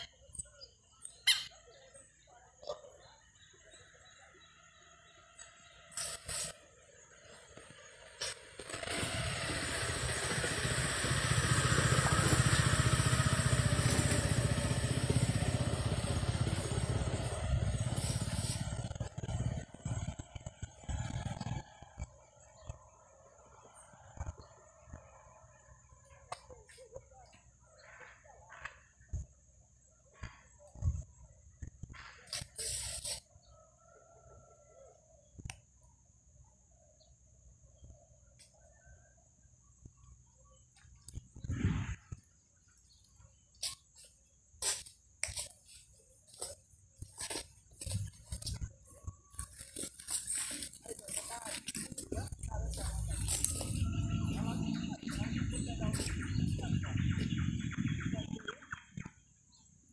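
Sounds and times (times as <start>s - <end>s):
small engine running: 0.0s - 59.9s
chickens clucking: 47.2s - 59.1s.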